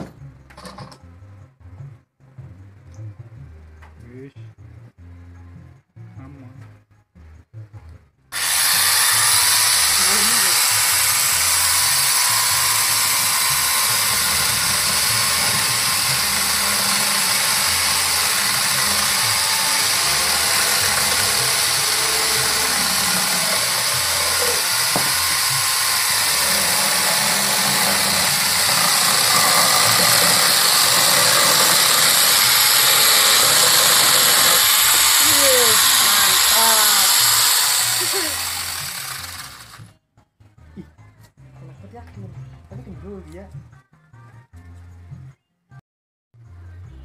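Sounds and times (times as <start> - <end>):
electric chainsaw cutting wood: 8.3 - 39.9.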